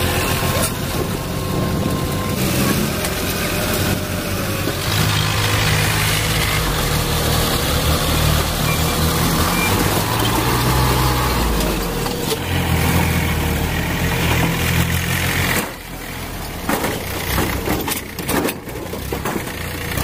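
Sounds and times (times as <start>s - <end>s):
tractor diesel engine running: 0.0s - 20.0s
knocks and rattles: 16.6s - 20.0s.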